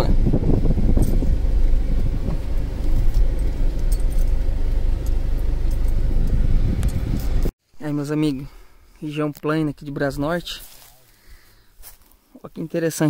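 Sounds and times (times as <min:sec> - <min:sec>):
car engine and tyre rumble: 0:00.0 - 0:07.5
light rattles and clicks: 0:02.0 - 0:07.5.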